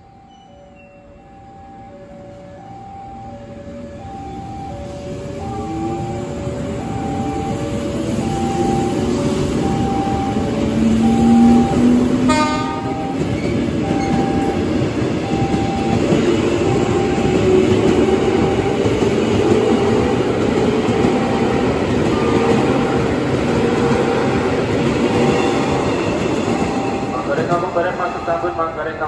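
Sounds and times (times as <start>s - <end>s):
electric train running on rails: 0.0s - 29.0s
train horn blast: 11.2s - 13.2s.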